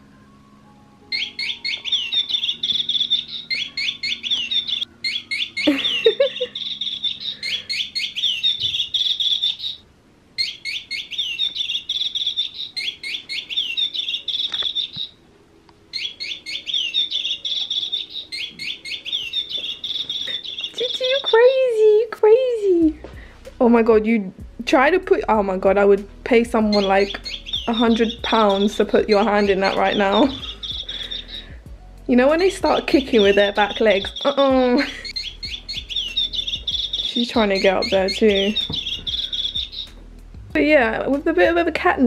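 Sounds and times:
toy bird chirping electronically: 1.1s - 15.2s, 15.9s - 21.7s, 26.7s - 31.6s, 32.3s - 40.0s.

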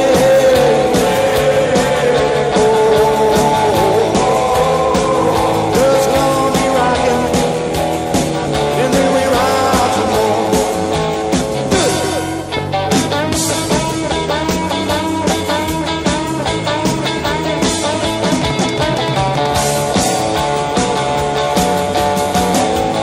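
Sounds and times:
person singing: 0.0s - 7.6s, 8.6s - 11.1s, 11.7s - 12.4s
rock and roll song: 0.0s - 23.0s
steady drum beat: 0.0s - 23.0s.

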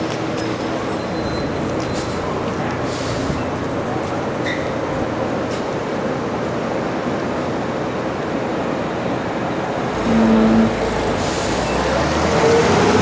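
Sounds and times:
tyres hissing on wet road: 0.1s - 13.0s
low engine hum: 0.8s - 6.0s.

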